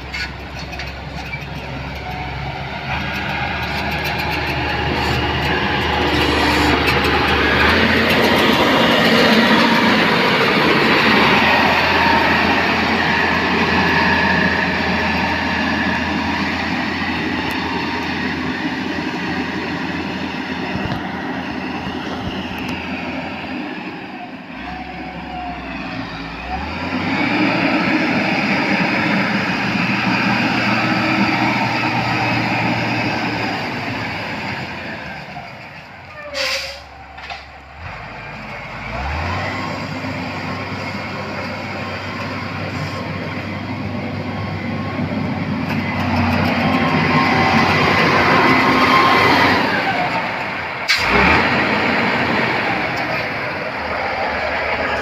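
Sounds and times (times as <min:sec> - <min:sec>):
diesel engine under load: 0:00.0 - 0:55.0
blade dragging dirt: 0:02.9 - 0:16.6.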